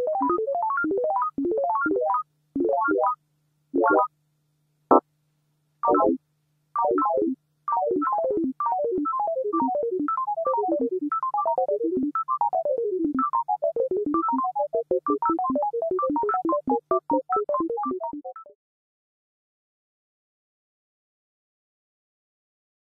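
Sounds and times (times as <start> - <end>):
synthesized electronic note cascades: 3.8 - 4.1.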